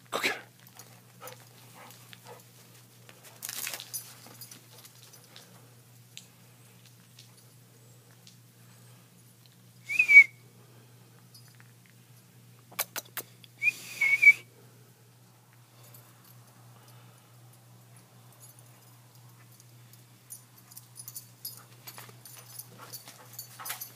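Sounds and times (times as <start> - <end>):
person whistling: 9.9 - 10.4, 13.6 - 14.5
quick sharp clicks: 12.7 - 13.3.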